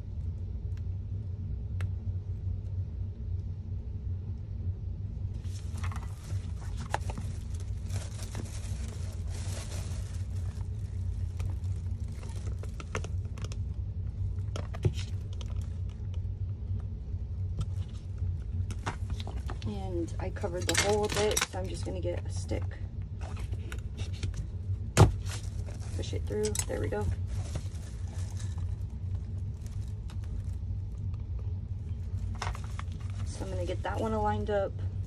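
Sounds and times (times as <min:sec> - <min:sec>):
steady low hum: 0:00.0 - 0:35.0
paper and plastic rustling: 0:05.4 - 0:13.6, 0:14.4 - 0:15.8, 0:18.7 - 0:19.8, 0:20.4 - 0:21.9, 0:23.2 - 0:30.6, 0:31.8 - 0:34.3.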